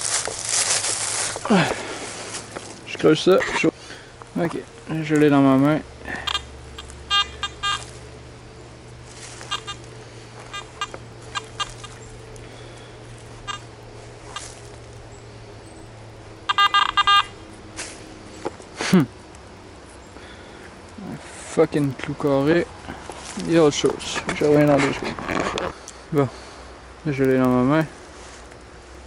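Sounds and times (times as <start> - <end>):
low steady hum: 0.0 - 29.0
metal detector rapid beeps: 6.2 - 7.9, 9.4 - 9.8, 10.4 - 12.0, 13.4 - 13.7, 16.4 - 17.4.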